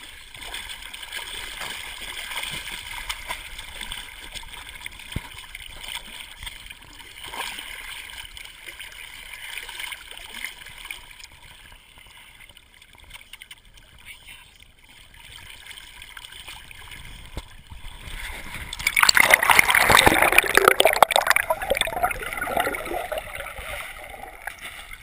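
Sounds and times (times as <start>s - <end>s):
dog paddling and splashing water: 0.2s - 11.7s.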